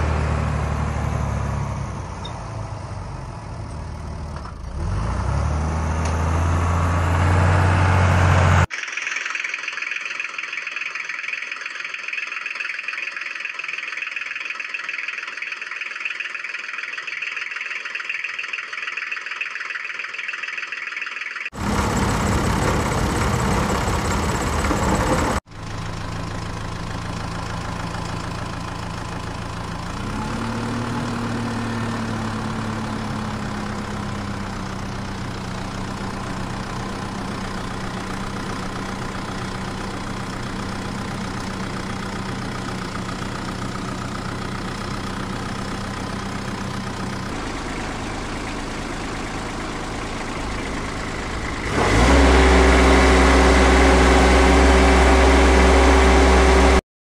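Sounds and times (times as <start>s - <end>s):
loud engine: 0.0s - 8.7s, 21.5s - 56.8s
vehicle engine idling: 11.6s - 56.8s.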